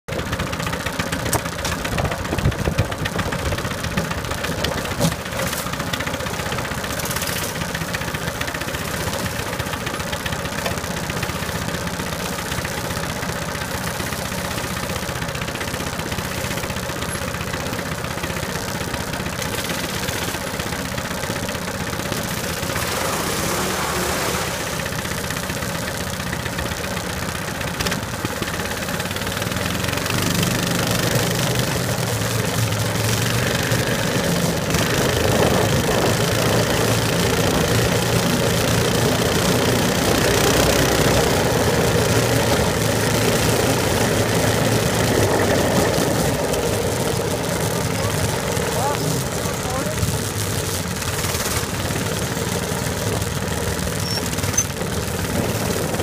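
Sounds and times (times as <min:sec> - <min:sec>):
small engine idling: 0:00.0 - 0:56.0.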